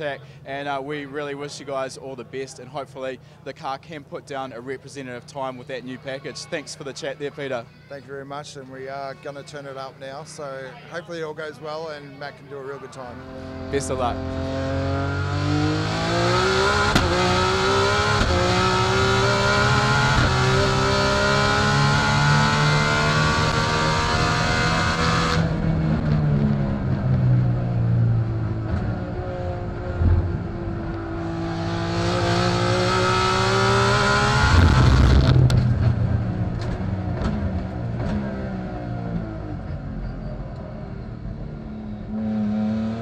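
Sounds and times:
car engine at full throttle: 0:13.1 - 0:43.0
exhaust cracks: 0:34.3 - 0:39.9.

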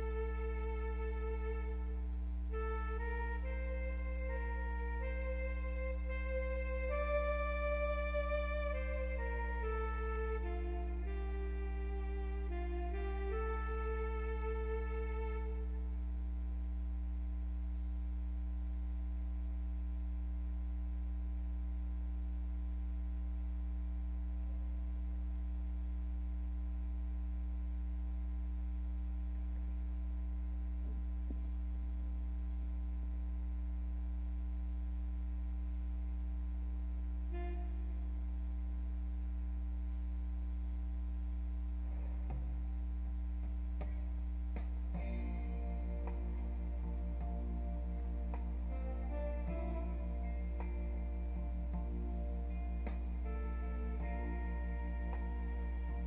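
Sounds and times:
music: 0:00.0 - 0:17.0, 0:37.2 - 0:39.2, 0:40.6 - 0:56.0
low electrical hum: 0:00.0 - 0:56.0.

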